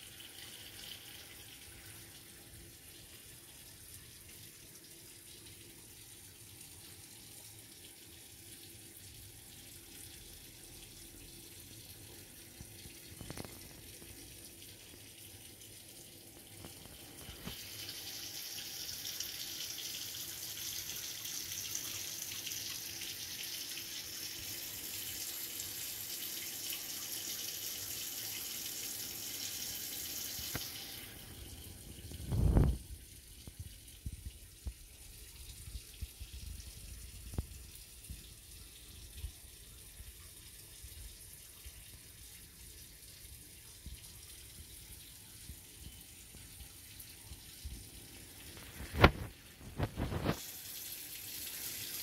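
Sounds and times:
running water hissing: 16.6 - 32.8, 47.9 - 52.0.

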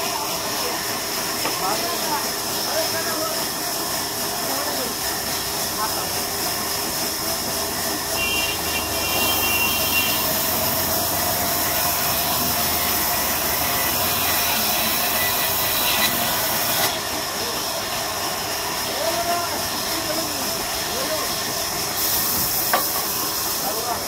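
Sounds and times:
band saw whining through log: 0.0 - 24.0.

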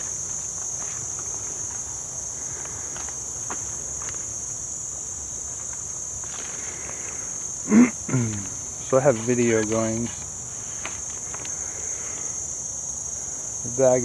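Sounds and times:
footsteps on mud and leaves: 0.0 - 4.4, 5.4 - 7.5, 8.4 - 11.6
insects buzzing: 0.0 - 14.0.

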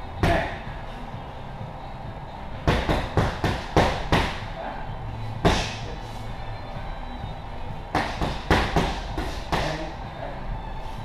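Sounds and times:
strikes hitting pads: 0.2 - 0.6, 2.6 - 4.5, 5.4 - 5.8, 7.9 - 9.8.

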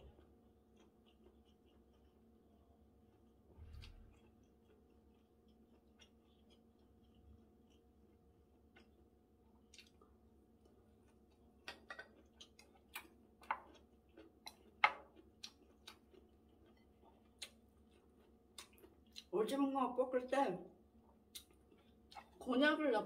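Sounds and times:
person chewing: 0.0 - 19.3, 21.0 - 22.4
faint hum: 0.0 - 23.0.

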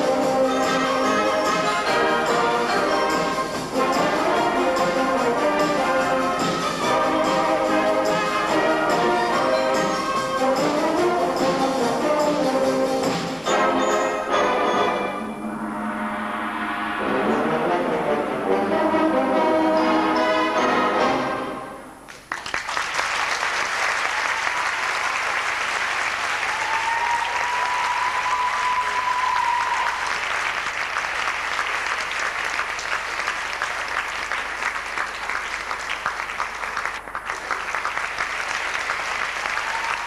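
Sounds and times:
wind band playing: 0.0 - 22.0
held rising tone: 15.1 - 17.8
audience applause: 22.1 - 40.0.

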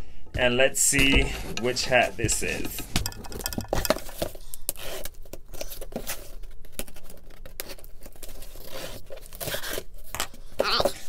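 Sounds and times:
cardboard and paper rustling: 3.6 - 11.0
packing tape tearing: 4.1 - 10.1.

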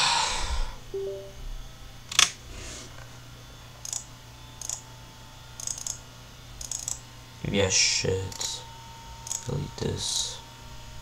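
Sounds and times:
low steady hum: 0.4 - 2.0
computer mouse clicks: 6.6 - 7.0.

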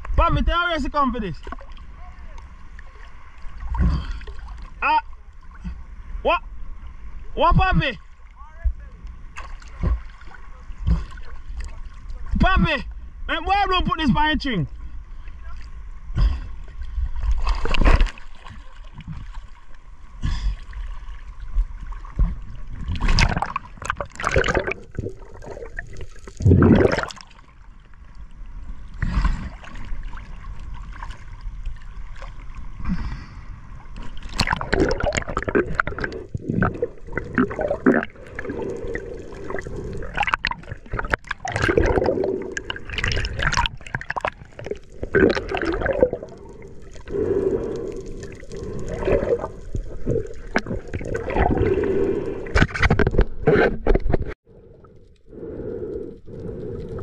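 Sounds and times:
sea water splashing and gurgling: 0.9 - 8.4, 9.2 - 13.2, 14.7 - 57.0.

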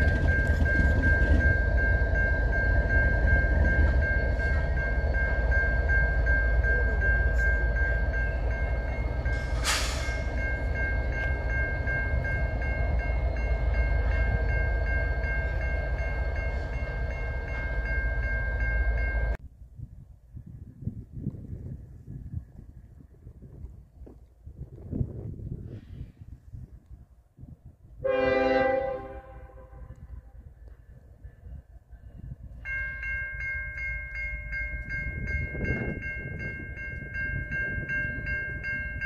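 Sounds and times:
diesel locomotives rumbling: 0.0 - 19.4, 20.5 - 39.0
high-pitched bell ringing: 0.1 - 19.4
short air hiss: 9.4 - 10.2.

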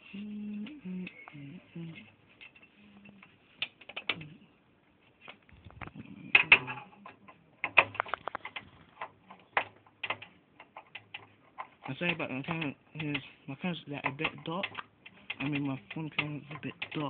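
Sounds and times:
small metal parts clicking: 14.0 - 17.0.

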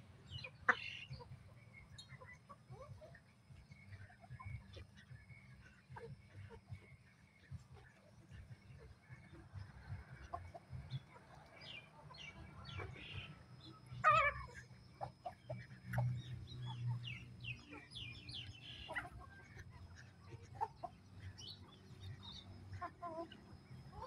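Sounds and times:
chickens clucking: 0.0 - 24.0
chicken squawk: 12.6 - 16.0, 18.8 - 19.4.

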